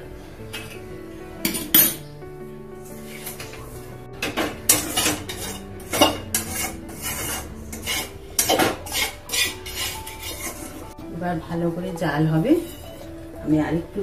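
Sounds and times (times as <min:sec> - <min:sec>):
metal cookware clinking and scraping: 0:01.4 - 0:02.0, 0:03.0 - 0:03.6, 0:04.2 - 0:10.9, 0:12.4 - 0:13.2.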